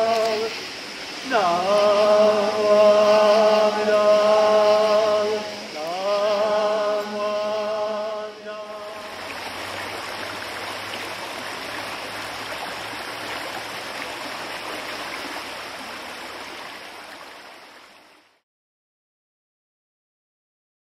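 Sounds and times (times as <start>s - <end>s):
chanting: 0.0s - 0.6s, 1.2s - 9.6s
flowing water rushing: 0.0s - 18.4s.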